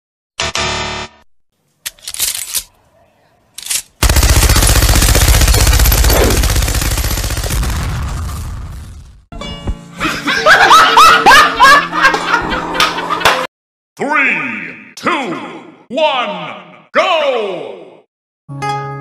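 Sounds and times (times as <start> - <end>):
machine-gun fire: 4.0 - 8.7
explosion: 5.4 - 9.3
person laughing hard: 10.0 - 13.4.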